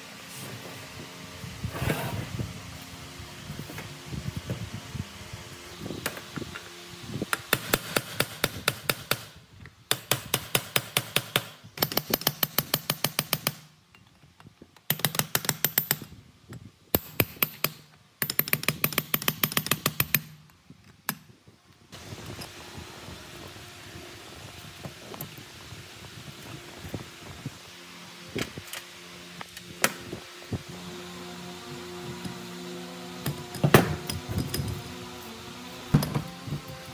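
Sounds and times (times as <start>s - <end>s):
rapid tool strikes: 7.3s - 13.7s.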